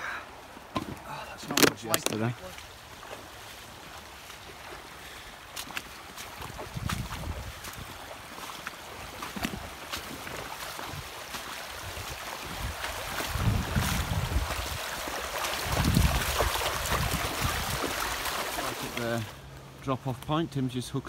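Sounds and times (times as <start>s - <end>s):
river rippling over stones: 0.0s - 19.7s
dog splashing through water: 5.6s - 19.2s
wind buffeting microphone: 6.4s - 8.0s, 11.9s - 14.8s, 15.6s - 18.0s.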